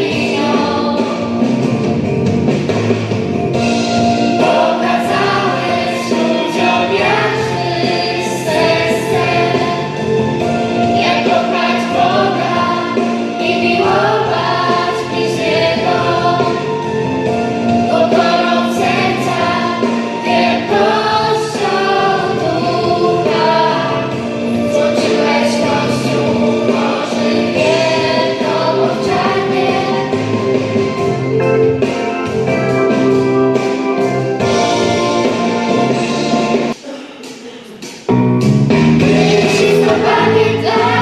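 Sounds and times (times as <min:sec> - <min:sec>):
choir singing religious song: 0:00.0 - 0:01.6, 0:04.1 - 0:31.3, 0:39.0 - 0:41.0.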